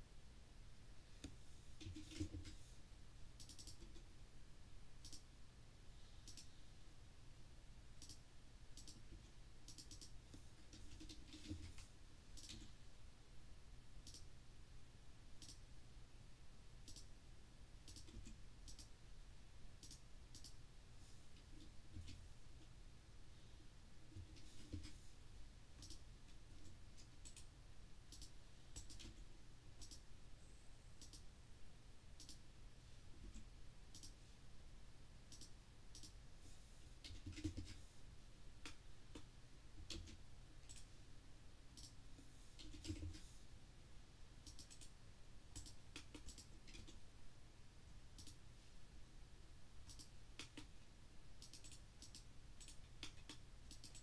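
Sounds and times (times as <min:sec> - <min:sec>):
mouse and keyboard clicks: 0:03.4 - 0:04.1, 0:05.0 - 0:05.2, 0:06.2 - 0:06.5, 0:08.0 - 0:08.2, 0:08.8 - 0:12.7, 0:14.0 - 0:14.3, 0:15.4 - 0:15.6, 0:16.8 - 0:17.1, 0:17.9 - 0:18.9, 0:19.8 - 0:20.6, 0:25.8 - 0:26.0, 0:26.6 - 0:27.5, 0:28.1 - 0:29.2, 0:29.8 - 0:30.0, 0:31.0 - 0:31.2, 0:32.2 - 0:32.4, 0:33.2 - 0:34.2, 0:35.3 - 0:36.2, 0:37.0 - 0:37.8, 0:38.6 - 0:40.9, 0:42.6 - 0:43.2, 0:44.4 - 0:44.9, 0:45.6 - 0:47.0, 0:48.2 - 0:48.4, 0:49.9 - 0:50.7, 0:51.4 - 0:54.0.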